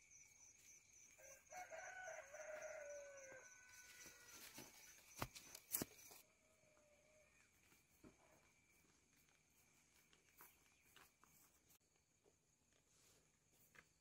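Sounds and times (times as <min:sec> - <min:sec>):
rooster crowing: 0:01.2 - 0:04.5.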